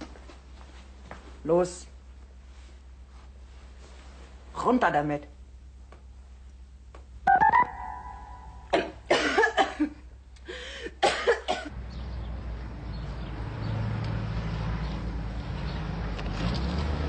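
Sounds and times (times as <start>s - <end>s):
short rising high sound: 7.3s - 8.7s
woman coughing and spluttering: 8.7s - 10.0s, 11.0s - 11.7s.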